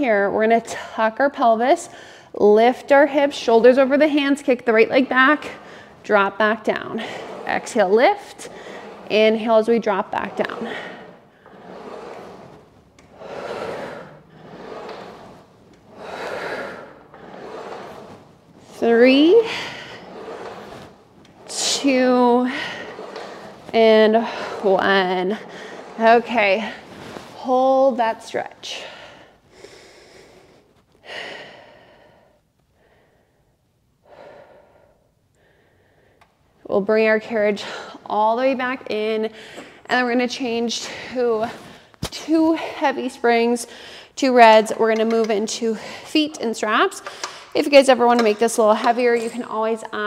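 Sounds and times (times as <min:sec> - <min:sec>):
woman breathing hard: 0:13.1 - 0:14.8, 0:15.9 - 0:17.4, 0:28.7 - 0:36.2, 0:43.7 - 0:44.2.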